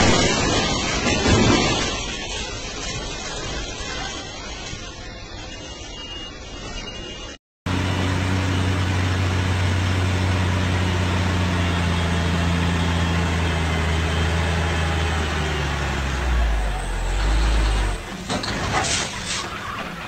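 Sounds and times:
diesel truck engine under load: 7.7 - 20.0.

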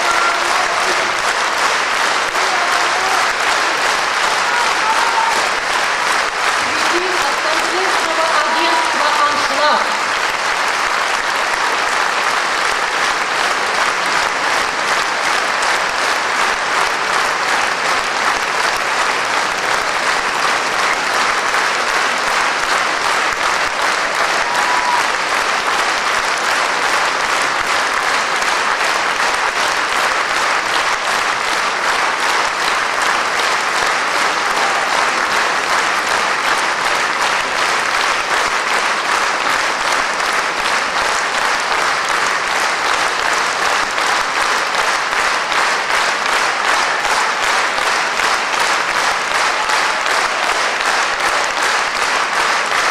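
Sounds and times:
audience applauding: 0.0 - 52.9.

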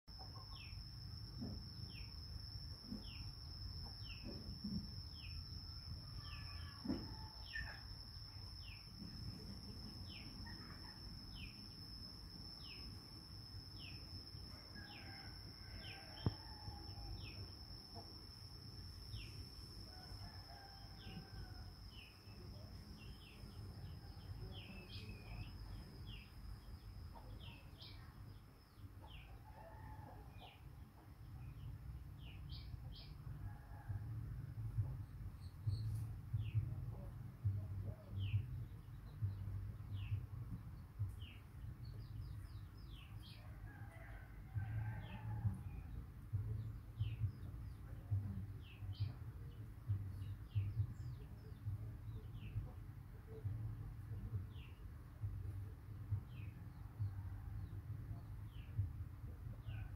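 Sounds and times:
steady high-pitched whine: 0.1 - 59.0
low background rumble: 30.7 - 59.9.

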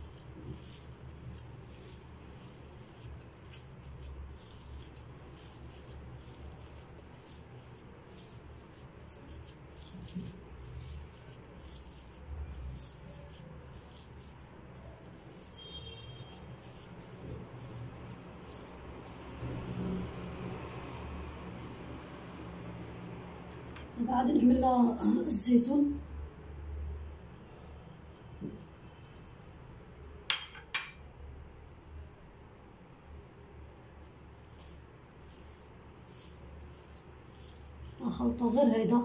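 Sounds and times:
hands rubbing semolina in a bowl: 0.0 - 24.6, 34.0 - 39.0.

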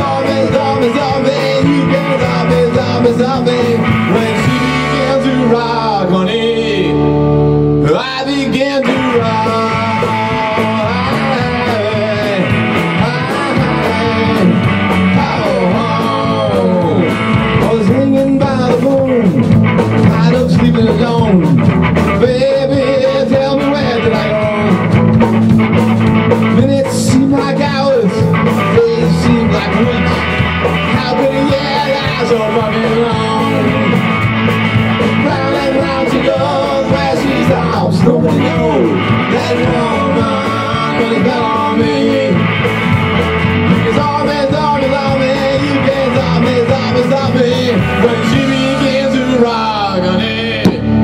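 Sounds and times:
steady drum beat: 0.0 - 6.1, 8.4 - 50.0, 50.6 - 51.0
lead electric guitar with bent notes: 0.0 - 51.0
rhythm guitar: 0.0 - 51.0.

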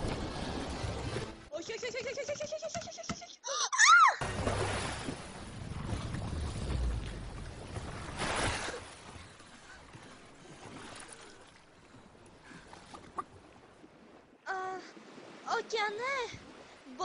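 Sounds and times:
waves washing around boat: 0.0 - 1.5, 4.2 - 17.0.

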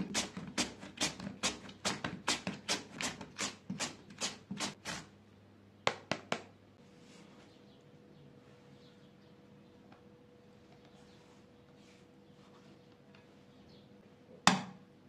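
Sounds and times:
potato scraping on a grater: 0.0 - 5.1.

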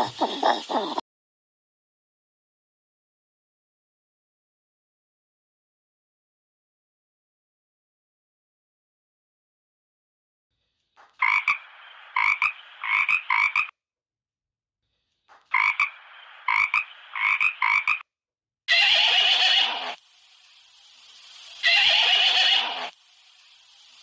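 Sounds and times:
frog croaking: 11.2 - 13.7, 15.5 - 18.0
horse whinnying: 18.7 - 20.0, 21.6 - 22.8.

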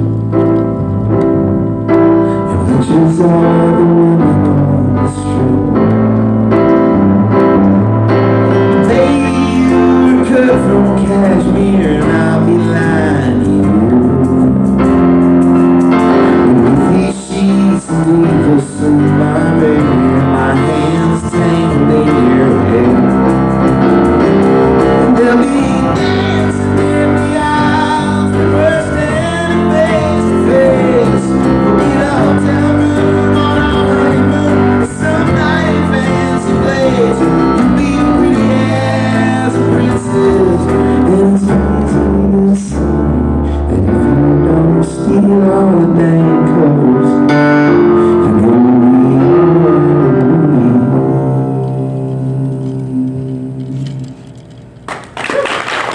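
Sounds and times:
electric stage piano: 0.0 - 55.9
man singing: 1.9 - 54.3
drum kit playing: 5.4 - 43.0.

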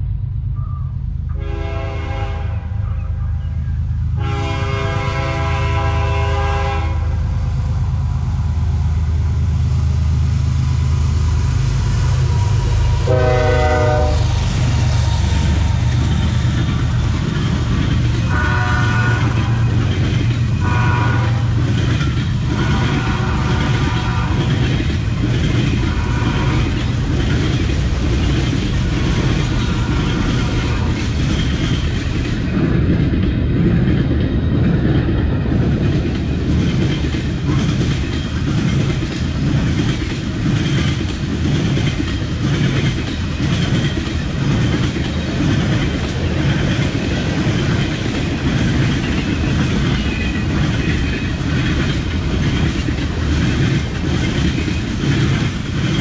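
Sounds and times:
train rumbling past: 0.0 - 56.0
wheels clacking over rails: 11.7 - 56.0.

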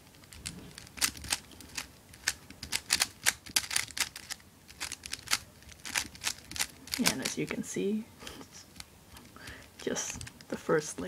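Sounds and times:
puzzle cube clicking: 0.1 - 7.6.

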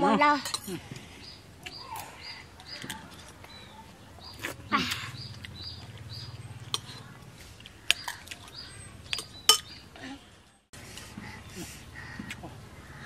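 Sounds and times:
spoons clinking against bowls: 0.4 - 0.8, 9.1 - 9.8.

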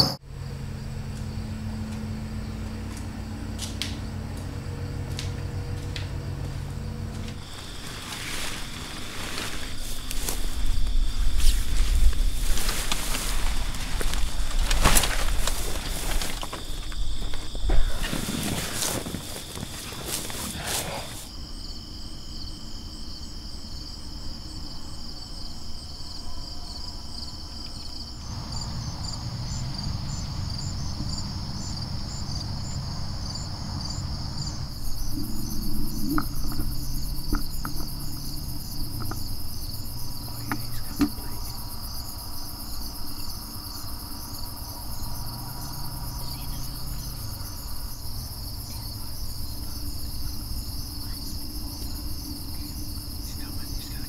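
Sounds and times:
crickets and insects chirping: 0.0 - 54.0
low rumble: 28.2 - 41.7.

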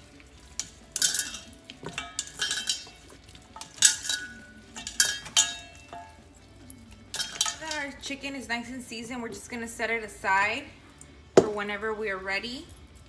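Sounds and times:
metal bowl clinking and rattling: 0.0 - 8.2.

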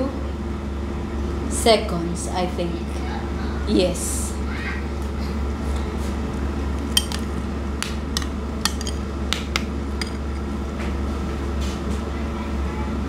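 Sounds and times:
air fryer humming: 0.0 - 13.0
spoon clinking in ceramic bowl: 8.2 - 9.0, 10.0 - 10.5.

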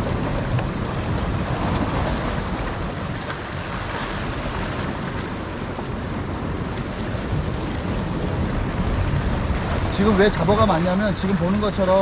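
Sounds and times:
sea waves on rocky shore: 0.0 - 12.0
wind buffeting microphone: 0.0 - 12.0.

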